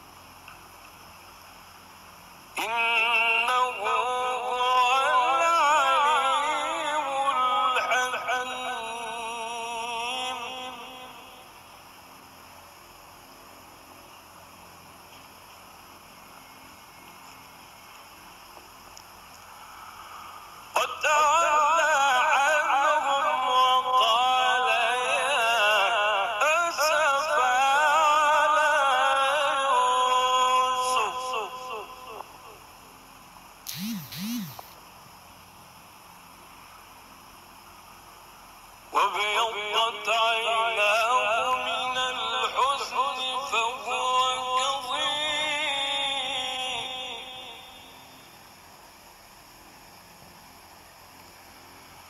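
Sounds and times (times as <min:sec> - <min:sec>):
faint background noise: 0:00.0 - 0:52.0
man reciting melodically: 0:02.6 - 0:11.4, 0:20.7 - 0:32.6, 0:38.9 - 0:47.7.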